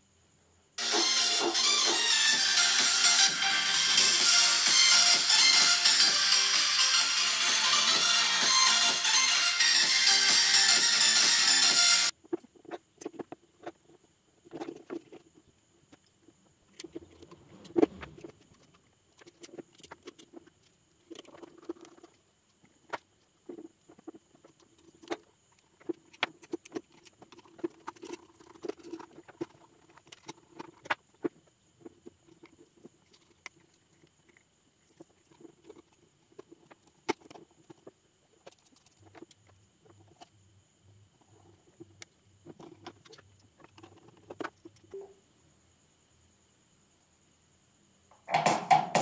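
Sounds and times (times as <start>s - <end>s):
sharp knock: 48.3s - 49.0s.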